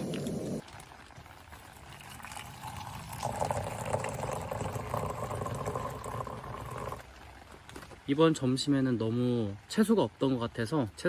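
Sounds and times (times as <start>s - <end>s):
water poured into metal mug: 0.0s - 7.4s.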